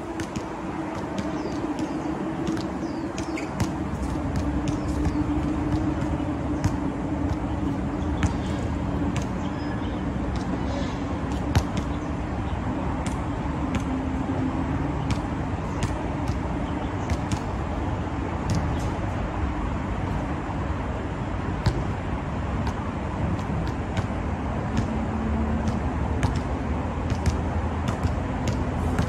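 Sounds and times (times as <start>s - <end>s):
road traffic hum: 0.0s - 29.0s
basketball bouncing on hard court: 0.2s - 7.5s, 8.2s - 9.7s, 17.0s - 17.6s, 21.6s - 21.9s, 23.4s - 29.0s.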